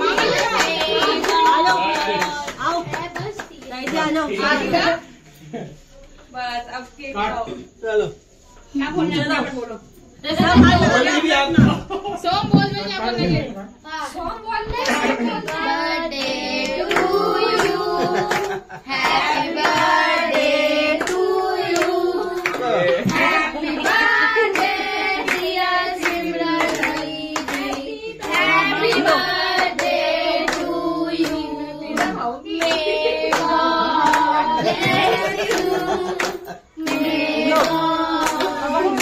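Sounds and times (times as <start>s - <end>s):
hand claps: 0.0s - 4.1s, 16.2s - 39.0s
group singing a birthday tune: 0.0s - 5.8s, 10.2s - 11.8s, 14.2s - 39.0s.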